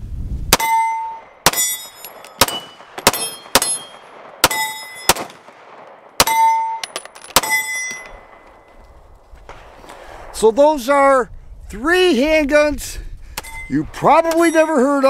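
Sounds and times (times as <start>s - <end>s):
pistol shots: 0.5s - 8.7s
steel targets ringing: 0.6s - 5.3s, 6.2s - 8.8s, 13.4s - 15.0s.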